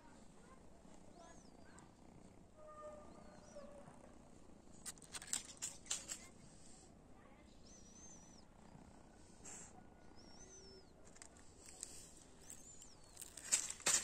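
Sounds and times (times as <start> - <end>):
small bird whistling call: 7.6 - 8.4, 10.2 - 10.9.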